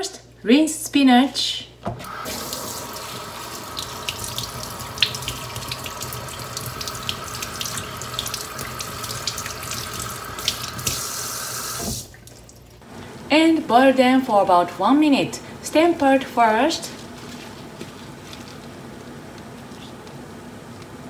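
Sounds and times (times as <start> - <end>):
tap water running into metal sink: 2.0 - 12.2.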